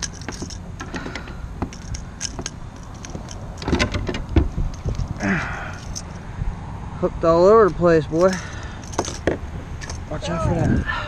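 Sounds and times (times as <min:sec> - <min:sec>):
louder clicks and knocks: 0:00.0 - 0:05.2, 0:08.8 - 0:10.0
metal hooks clicking and clinking: 0:00.0 - 0:06.2, 0:07.6 - 0:10.1
steady low rumble: 0:00.0 - 0:11.0.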